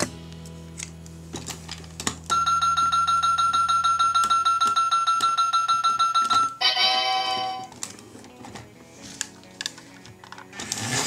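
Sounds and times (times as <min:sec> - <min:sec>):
electronic chime jingle: 0:02.3 - 0:07.7.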